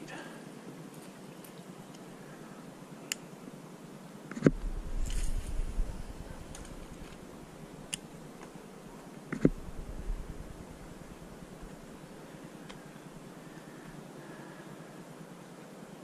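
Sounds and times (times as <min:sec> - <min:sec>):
low rumble: 0:04.5 - 0:08.4, 0:09.4 - 0:12.4.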